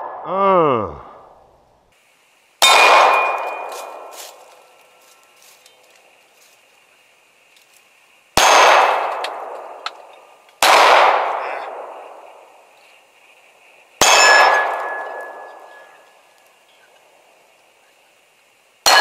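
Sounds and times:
pistol shots ringing: 2.6s - 4.2s, 8.4s - 9.8s, 10.6s - 12.0s, 14.0s - 16.0s.

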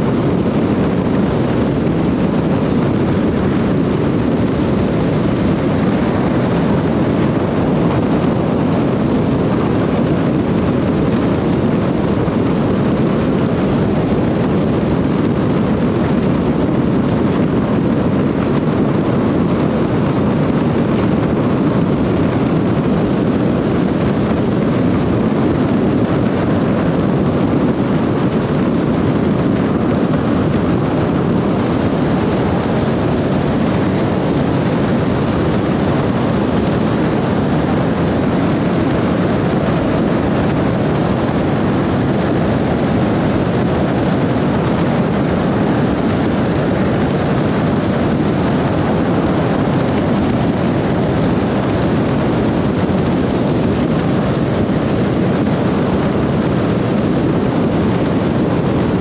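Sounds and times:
car road and wind noise: 0.0s - 59.0s.

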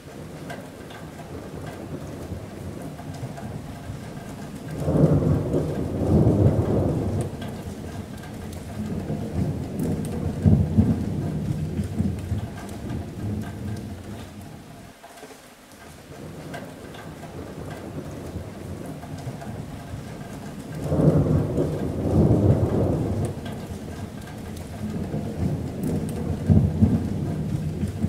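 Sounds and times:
rain on a metal roof: 0.0s - 28.0s
rolling thunder: 1.1s - 14.7s, 16.2s - 28.0s.

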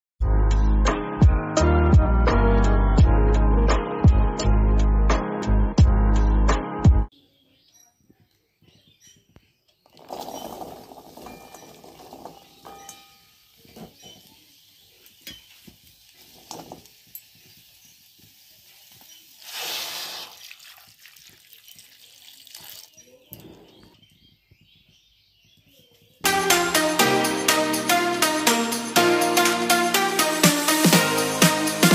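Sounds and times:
vegetables rustling in wok: 9.8s - 23.4s
brief hiss: 19.4s - 20.4s.

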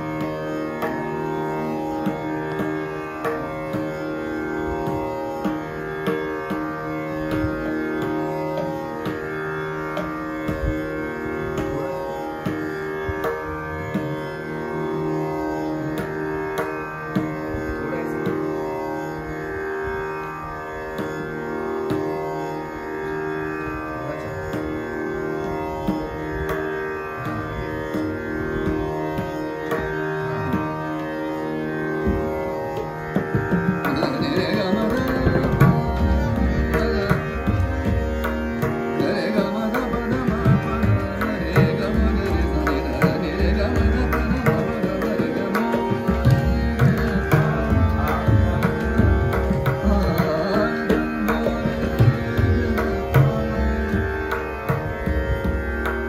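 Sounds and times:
harmonium playing sustained notes: 0.0s - 56.0s
tabla strokes: 32.0s - 56.0s.

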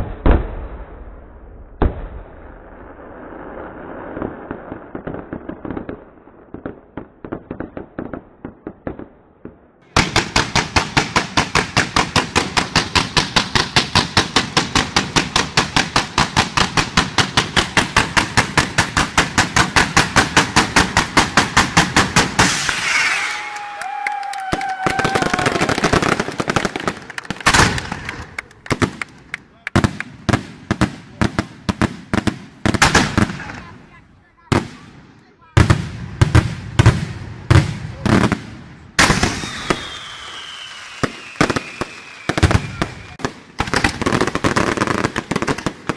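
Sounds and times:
rapid barrage of firework bangs: 1.8s - 23.2s, 24.9s - 45.9s
fireworks crackling: 2.3s - 9.1s, 9.8s - 45.9s
falling firework whistle: 22.4s - 26.4s, 39.0s - 43.3s.

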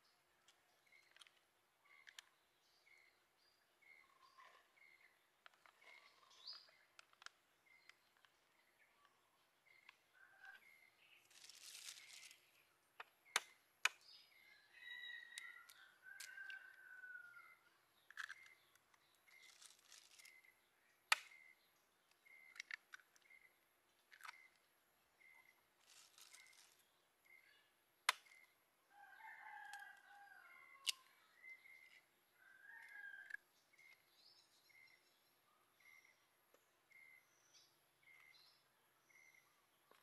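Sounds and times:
small birds chirping: 0.0s - 40.0s
distant rooster crowing: 14.7s - 17.6s, 28.9s - 31.1s, 32.4s - 33.4s.

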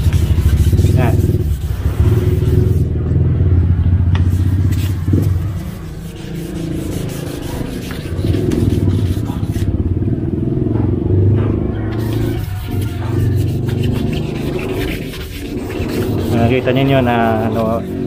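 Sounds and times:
sandpaper scraping plastic: 0.0s - 2.9s, 4.3s - 9.7s, 12.0s - 18.0s
vehicle engine rumble: 0.0s - 18.0s.

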